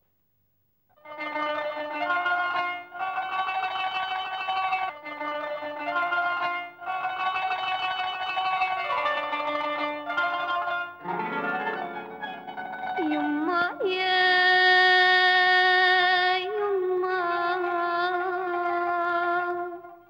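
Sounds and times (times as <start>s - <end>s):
woman singing: 13.0s - 20.0s.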